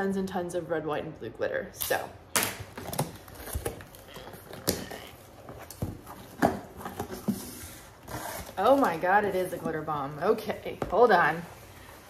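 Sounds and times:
cardboard box rustling: 3.0 - 12.0.

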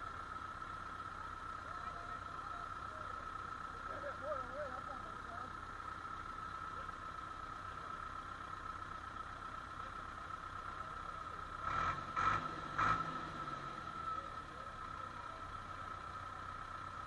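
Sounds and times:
tractor diesel engine idling: 0.0 - 17.0.

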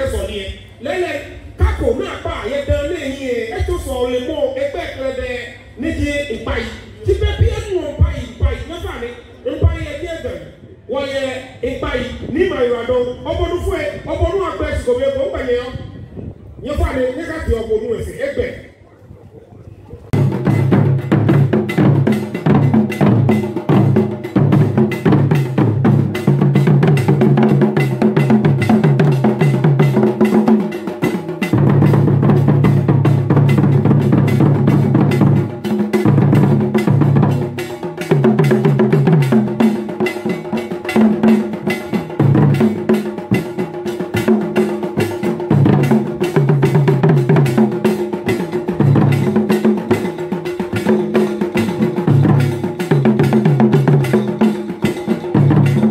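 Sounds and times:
drum ensemble fast rhythm: 1.6 - 5.3, 5.9 - 10.4, 20.1 - 55.9.

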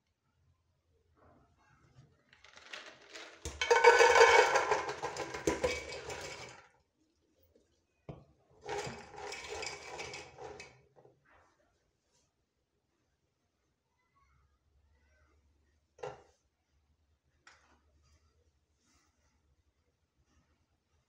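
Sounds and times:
beans pouring into a metal pot: 2.4 - 6.6.

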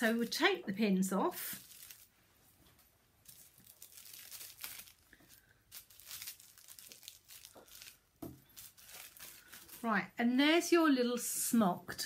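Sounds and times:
tissue paper rustling: 1.4 - 2.2, 3.2 - 10.1.

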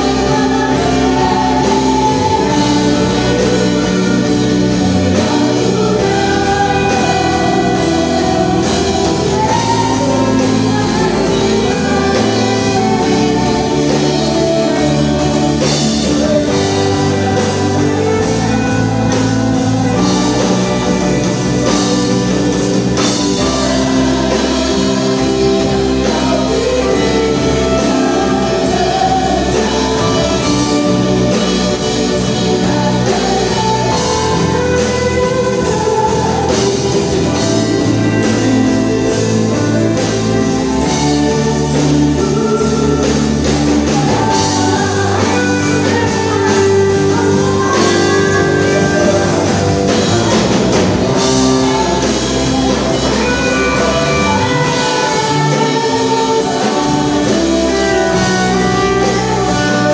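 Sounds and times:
drum kit: 0.0 - 59.9
electric guitar: 0.0 - 59.9
keyboards: 0.0 - 59.9
women singing praise song: 0.0 - 59.9.

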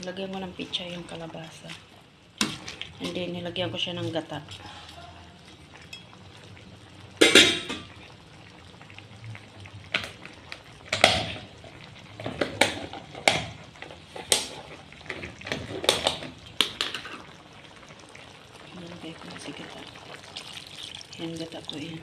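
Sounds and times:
utensils clinking on cooking pot: 7.2 - 8.0.

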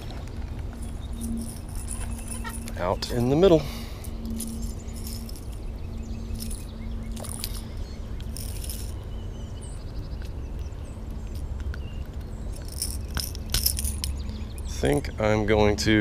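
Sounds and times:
faint bird chirps: 0.0 - 12.1.

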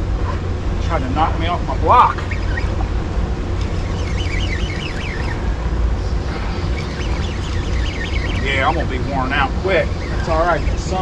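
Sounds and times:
water churning low rumble: 0.0 - 11.0
faint high chirps: 3.6 - 11.0.

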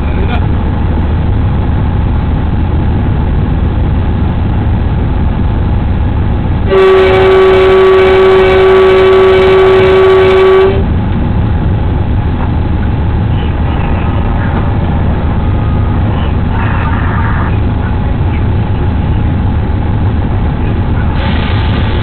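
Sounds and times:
locomotive cab rumble: 0.0 - 22.0
locomotive horn blast: 6.6 - 10.9.

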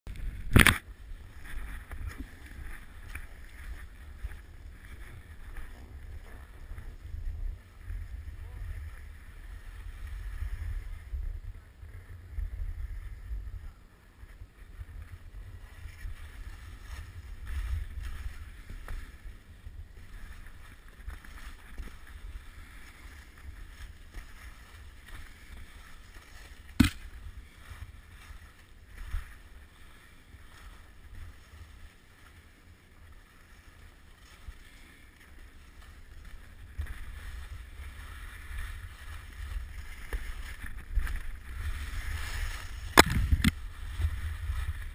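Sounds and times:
wind rumbling: 0.1 - 32.0, 35.4 - 44.9
skis scraping over snow: 0.1 - 44.9
sharp click: 0.5 - 0.8.

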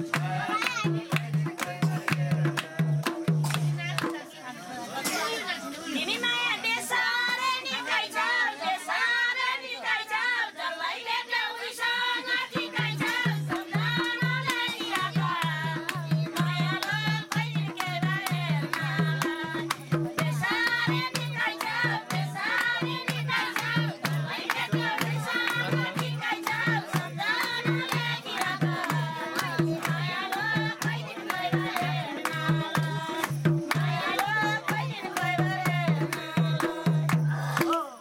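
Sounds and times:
barrel drum beat: 0.0 - 4.1, 12.8 - 37.9
hand-clapping: 0.0 - 4.2, 12.8 - 38.0
women singing together: 0.0 - 38.0.

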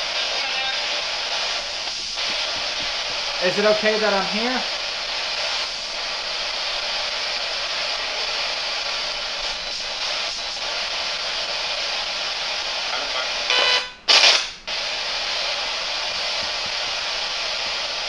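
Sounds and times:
garbled radio voice: 0.0 - 1.0, 3.4 - 4.8
static hiss: 0.0 - 18.0.

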